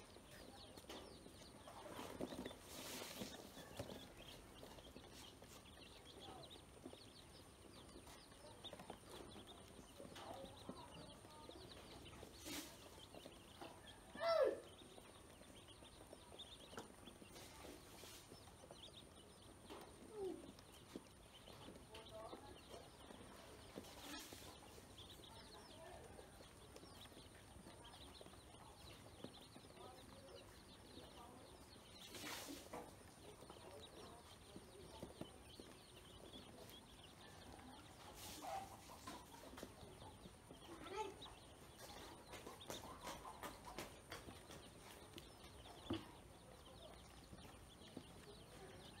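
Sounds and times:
ducklings peeping: 0.0s - 49.0s.

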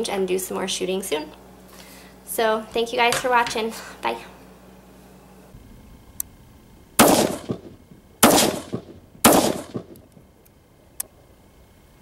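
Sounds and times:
rifle shots with echo: 7.0s - 10.0s.

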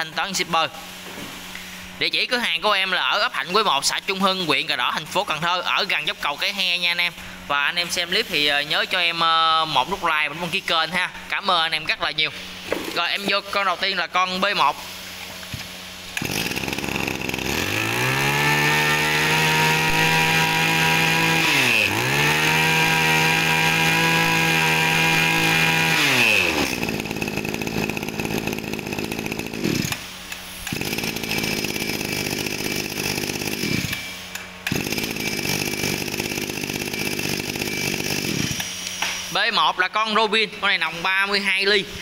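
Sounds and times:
brush cutter engine revving: 16.1s - 38.9s.

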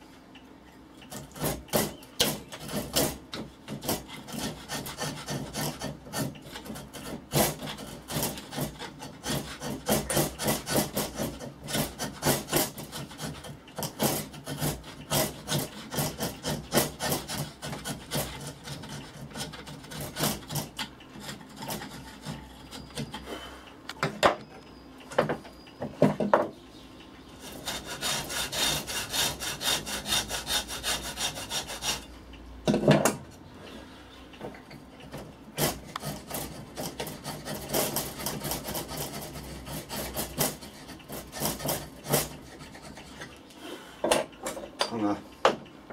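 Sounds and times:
hand file rasping wood: 1.1s - 23.3s, 27.4s - 32.1s, 35.6s - 43.3s.

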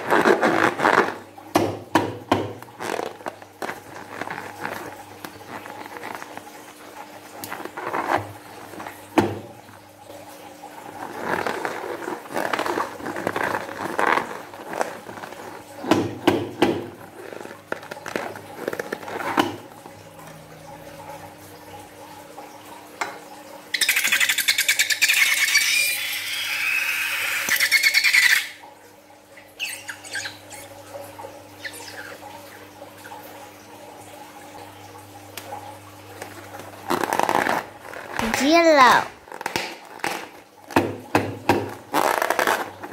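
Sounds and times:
rubbery balloon handling: 0.0s - 6.8s, 7.4s - 9.5s, 10.9s - 19.9s, 36.2s - 42.9s
slime sputtering from balloon: 23.8s - 28.6s.

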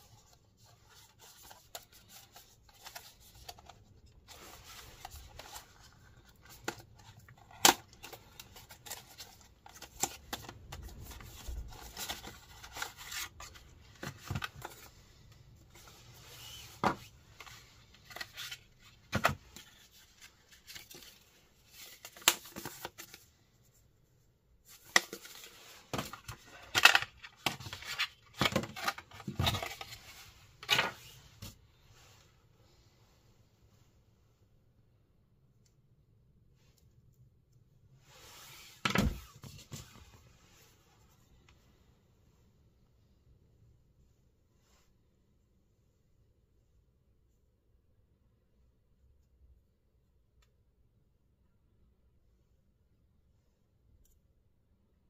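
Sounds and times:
handling rubbing and rustling: 0.0s - 32.4s.

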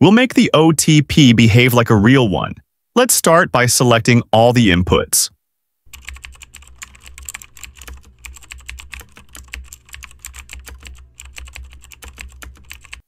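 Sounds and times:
fast keyboard typing: 5.9s - 13.0s.

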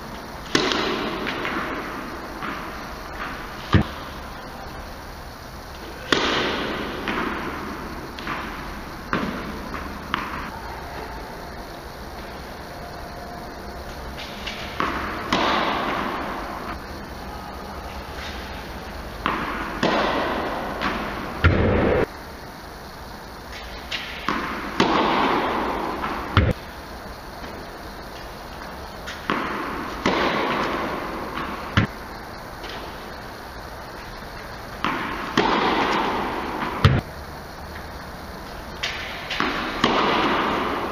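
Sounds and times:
tennis racket striking ball: 0.4s - 4.0s, 8.2s - 10.6s, 14.2s - 16.5s, 18.2s - 22.1s, 23.6s - 26.6s, 29.0s - 32.0s, 34.8s - 37.0s, 38.7s - 40.9s
ball bouncing on court: 0.4s - 4.1s, 5.7s - 11.1s, 14.2s - 16.8s, 18.2s - 22.1s, 23.5s - 26.7s, 27.4s - 33.2s, 33.9s - 37.1s, 38.7s - 40.9s.

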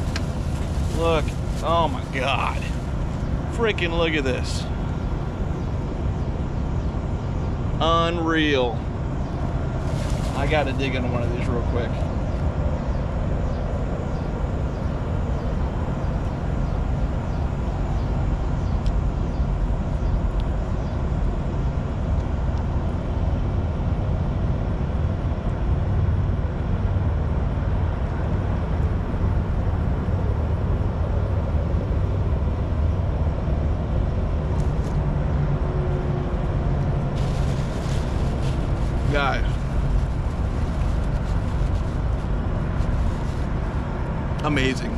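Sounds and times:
low rumble of vehicle engines: 0.0s - 44.9s.

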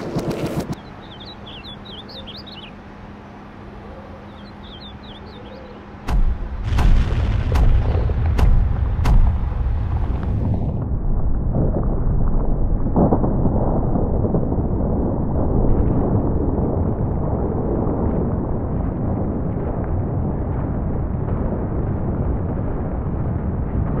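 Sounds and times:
debris cracking: 6.1s - 24.0s
deep muffled rumble of collapse: 6.1s - 24.0s.

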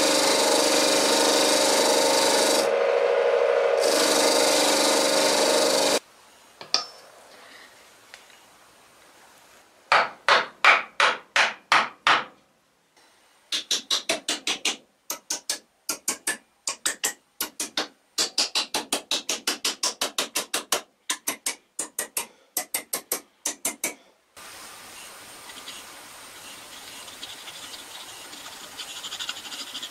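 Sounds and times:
hammer striking wooden handle: 9.9s - 12.4s.

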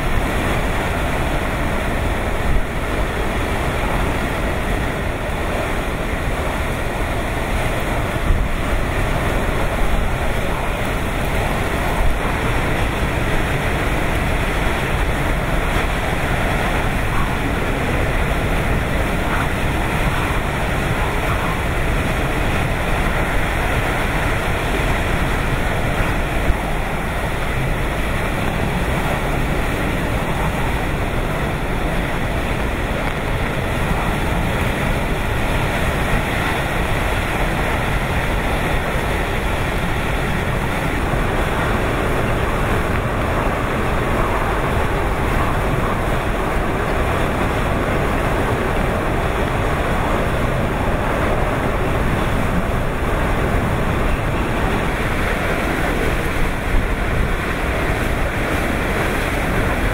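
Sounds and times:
driving rain: 0.0s - 59.9s
strong wind rushing: 0.0s - 59.9s
wind buffeting microphone: 0.0s - 59.9s.

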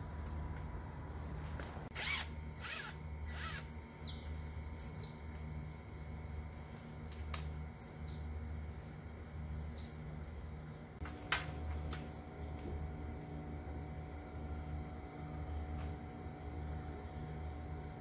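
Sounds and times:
low pulsing hum: 0.0s - 18.0s
cordless power driver spinning: 1.9s - 3.8s
birds chirping: 2.0s - 6.1s, 7.3s - 11.0s.

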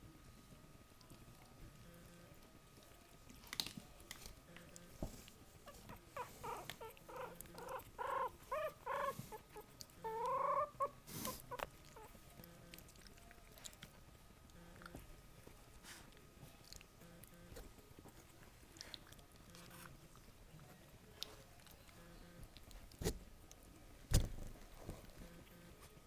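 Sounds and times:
puppy squeaking: 5.7s - 12.2s.

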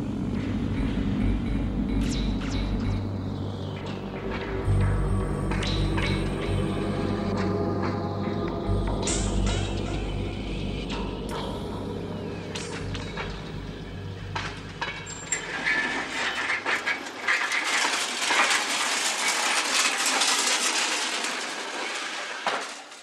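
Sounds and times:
low electronic drone: 0.0s - 18.3s
rail trolley wheels clattering: 0.0s - 23.0s.

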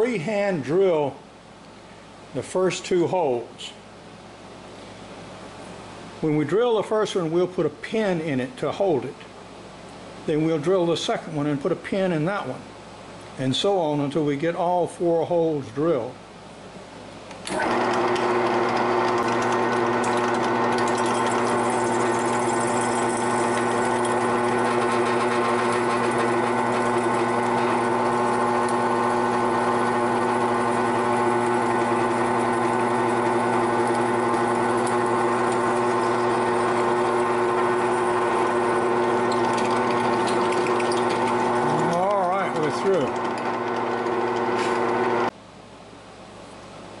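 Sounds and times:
drill press motor hum: 17.3s - 45.4s
drill bit drilling wood: 17.5s - 45.3s.

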